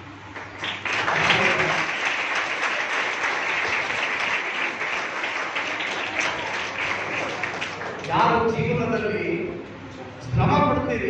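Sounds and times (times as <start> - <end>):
audience applauding: 0.3 - 8.4.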